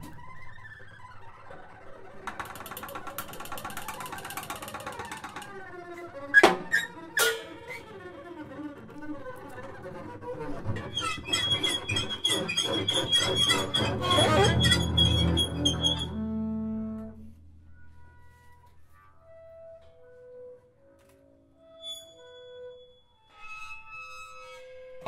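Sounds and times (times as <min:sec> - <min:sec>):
bowed double bass: 0:09.6 - 0:18.6
high steady squeal: 0:10.7 - 0:16.6, 0:21.7 - 0:25.0.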